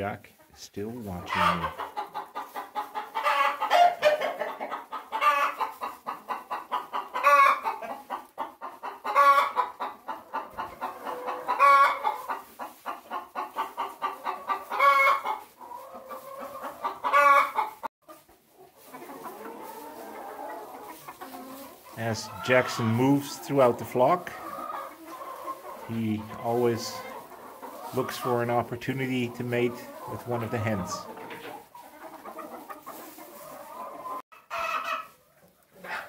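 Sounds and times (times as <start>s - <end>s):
chickens cackling: 0.3s - 36.0s
murmur of clucking: 0.4s - 36.0s
chicken squawk: 1.3s - 18.2s, 18.8s - 28.4s, 29.2s - 36.0s.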